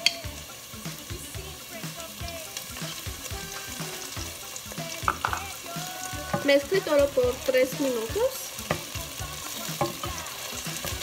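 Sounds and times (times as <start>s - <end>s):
background music with steady beat: 0.0s - 11.0s
vegetables sizzling in oil: 0.0s - 11.0s
wooden spoon stirring: 8.6s - 11.0s.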